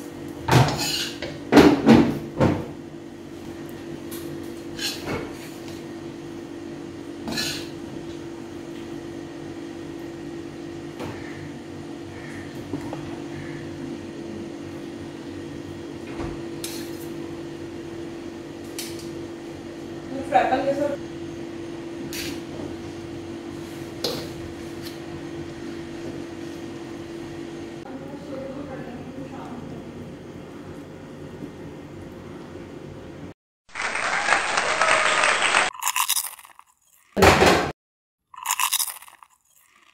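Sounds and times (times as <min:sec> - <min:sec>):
spatula scraping wok: 0:00.6 - 0:01.3, 0:04.7 - 0:05.7, 0:07.3 - 0:07.8.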